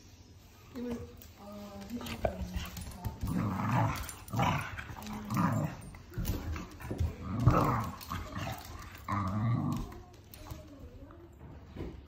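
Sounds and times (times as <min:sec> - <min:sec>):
dog growling: 0:02.1 - 0:10.2.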